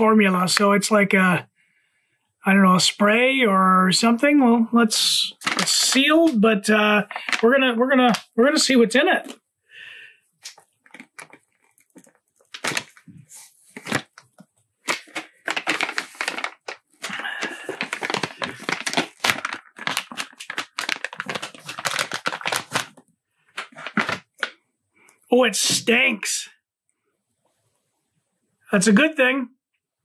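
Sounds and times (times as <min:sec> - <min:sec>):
plastic pouch tearing: 0:05.4 - 0:06.0, 0:07.1 - 0:07.4, 0:10.4 - 0:23.0, 0:23.6 - 0:24.6
plastic crinkling: 0:05.4 - 0:06.4, 0:07.0 - 0:07.4, 0:10.4 - 0:24.6.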